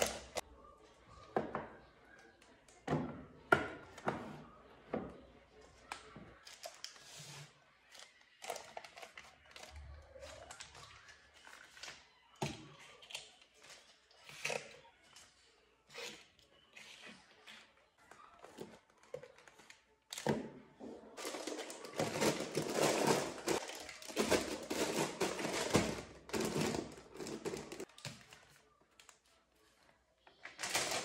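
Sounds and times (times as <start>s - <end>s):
plastic packets crinkling: 21.2s - 29.1s, 30.4s - 31.0s.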